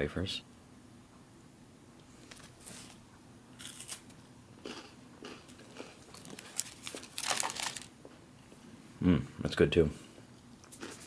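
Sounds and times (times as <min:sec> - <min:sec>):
crunching a wafer bar: 0:03.6 - 0:07.9.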